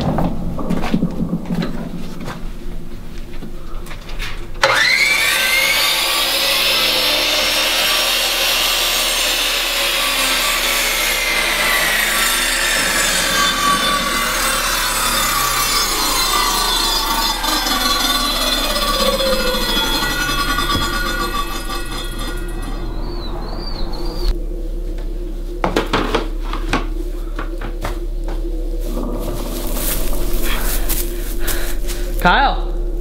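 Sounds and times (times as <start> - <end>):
power tool sawing: 4.6 - 24.3.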